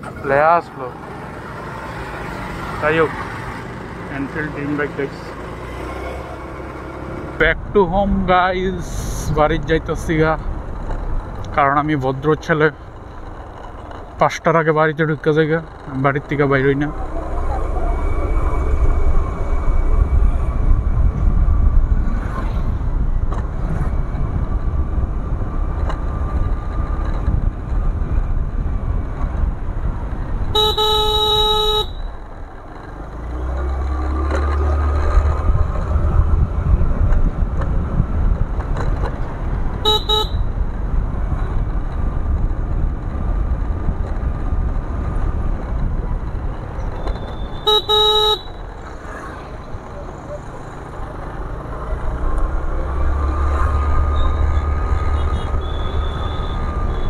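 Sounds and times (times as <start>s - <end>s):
motorcycle engine: 9.4s - 57.0s
motorcycle horn: 30.5s - 32.2s, 39.8s - 40.5s, 47.2s - 48.7s, 55.2s - 57.0s.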